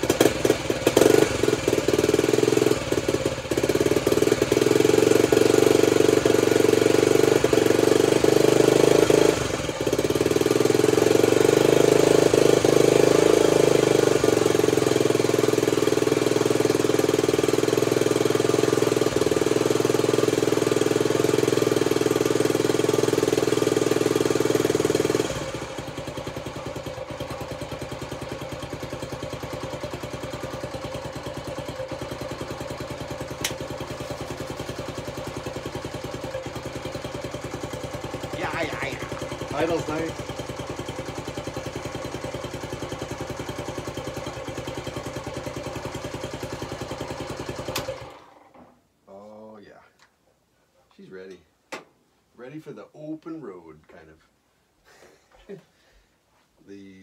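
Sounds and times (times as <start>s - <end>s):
motorcycle engine running and idling: 0.0s - 49.3s.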